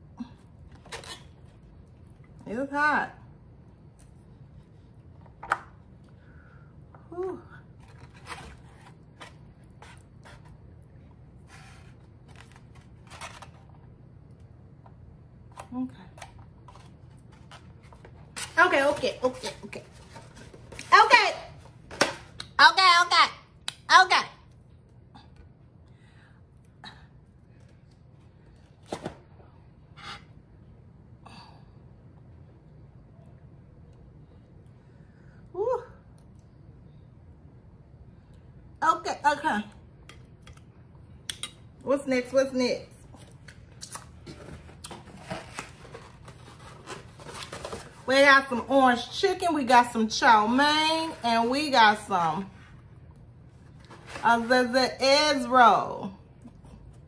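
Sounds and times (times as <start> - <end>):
fork scraping styrofoam box: 7.9 - 10.6.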